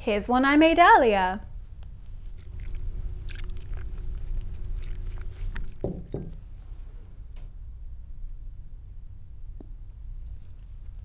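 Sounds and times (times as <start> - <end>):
carafe knocking on a desk: 5.8 - 6.4.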